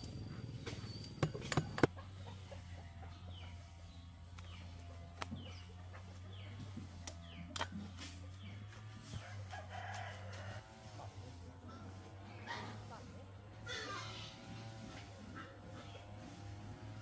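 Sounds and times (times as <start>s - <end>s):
chickens peeping: 0.6s - 7.6s.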